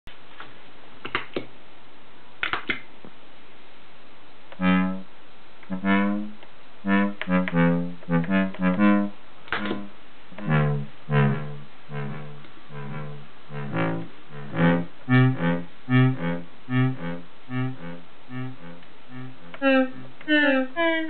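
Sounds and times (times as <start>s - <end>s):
analog synthesizer notes: 4.6s - 21.0s.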